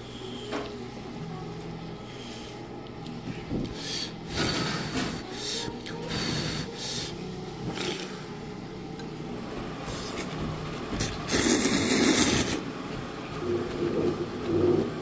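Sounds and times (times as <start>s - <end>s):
person slurping noodles: 7.7s - 8.2s, 9.9s - 10.3s, 11.0s - 12.6s.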